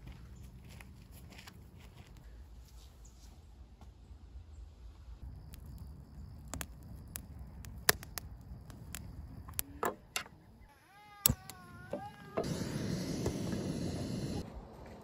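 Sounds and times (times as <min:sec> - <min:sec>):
campfire crackling and popping: 0:05.2 - 0:10.2.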